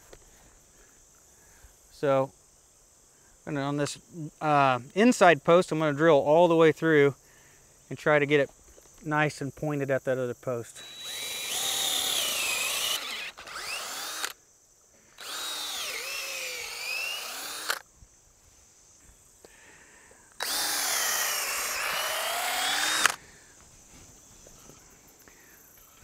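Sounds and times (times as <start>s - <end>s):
cordless drill boring into wood: 10.8s - 14.4s, 15.2s - 17.8s, 20.4s - 23.2s.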